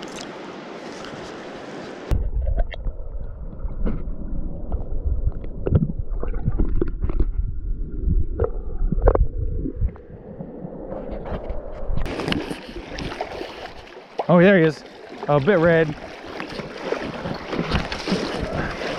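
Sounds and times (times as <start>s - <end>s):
underwater river rumble: 1.9s - 18.9s
underwater knocks and gurgles: 2.1s - 13.9s, 16.3s - 18.9s.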